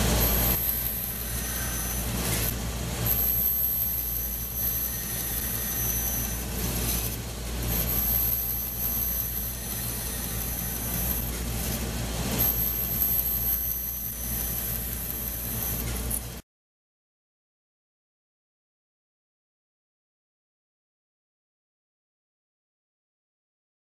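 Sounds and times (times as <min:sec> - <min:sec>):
band saw cutting plywood: 0:00.0 - 0:16.4.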